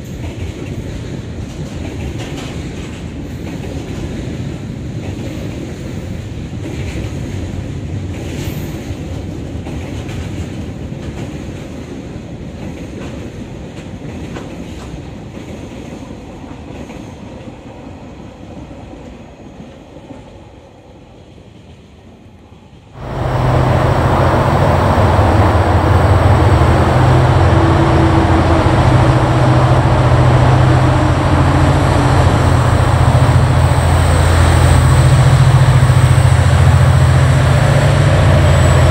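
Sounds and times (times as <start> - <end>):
diesel locomotive drone: 22.0 - 38.9.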